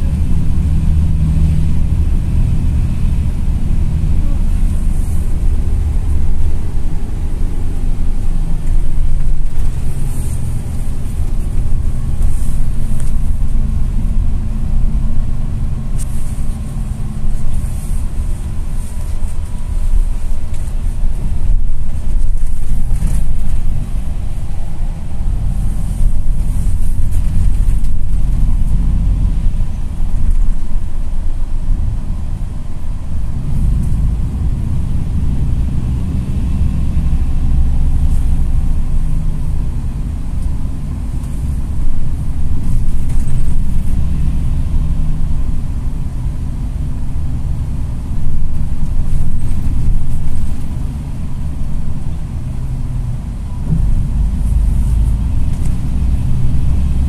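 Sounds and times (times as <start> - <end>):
bus engine and road rumble: 0.0 - 57.0.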